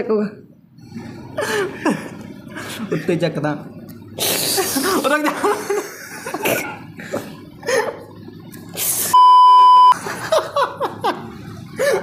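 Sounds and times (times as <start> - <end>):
laughter: 4.8 - 8.1, 9.9 - 12.0
censor bleep: 9.2 - 10.0.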